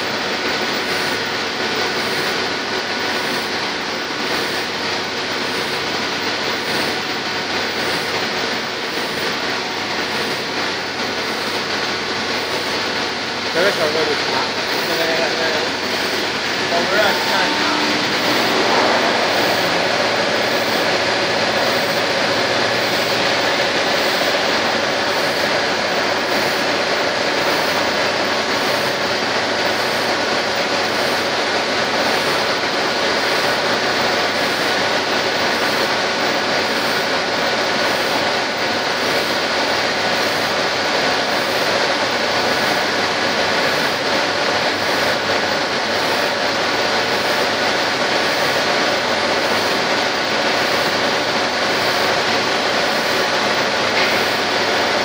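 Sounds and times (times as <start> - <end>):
finishing tool hiss and hum: 13.6 - 29.2
faint high pulse: 15.7 - 25.0.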